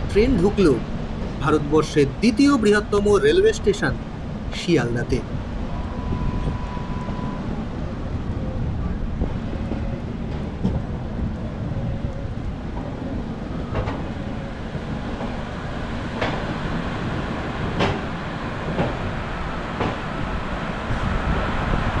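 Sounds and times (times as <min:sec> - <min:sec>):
train rumbling: 0:00.0 - 0:22.0
sharp train clank: 0:16.1 - 0:20.3.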